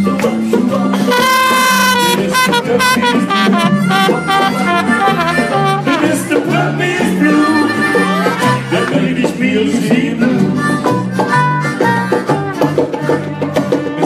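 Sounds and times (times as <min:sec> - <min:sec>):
strummed acoustic guitar: 0:00.2 - 0:14.0
bass line: 0:00.8 - 0:13.9
harmonica: 0:01.0 - 0:09.2, 0:10.2 - 0:14.0
trumpet: 0:01.1 - 0:06.6.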